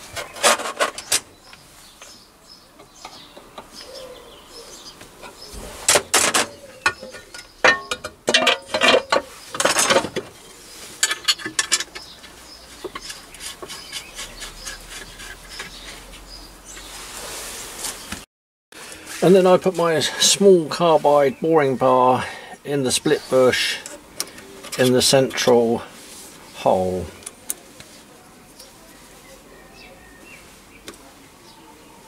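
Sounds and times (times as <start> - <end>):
metal tools clicking and clinking: 6.2 - 10.2, 11.0 - 12.1.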